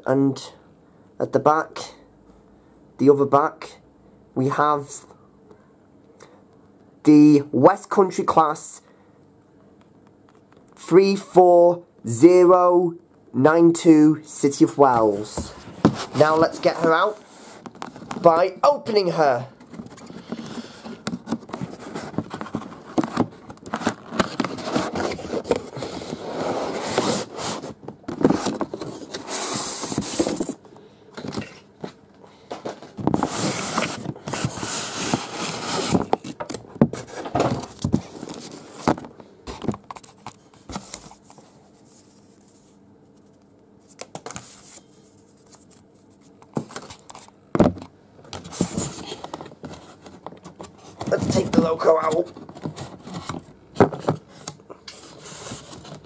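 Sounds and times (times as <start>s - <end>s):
cardboard scraping: 14.9s - 18.4s, 19.6s - 30.6s, 32.6s - 42.8s, 48.4s - 56.0s
paper rustling: 19.6s - 30.6s, 32.6s - 47.3s.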